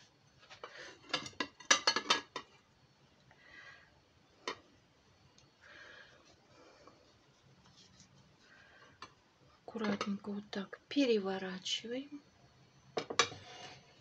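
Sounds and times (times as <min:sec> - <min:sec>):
faint soft rustling: 0:06.1 - 0:10.2.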